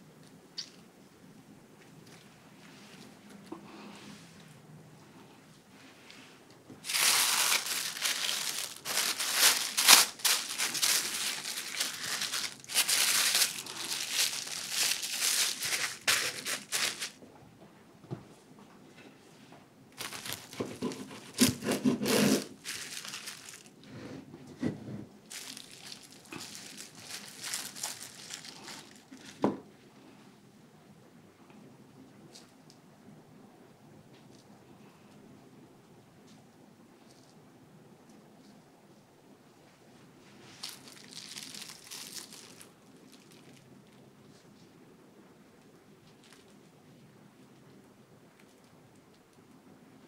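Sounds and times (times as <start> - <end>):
handling sounds: 6.8 - 17.2, 20.0 - 23.8, 25.3 - 29.4
parchment paper crinkling: 6.8 - 17.2, 20.0 - 23.8, 25.3 - 29.5, 40.4 - 43.6.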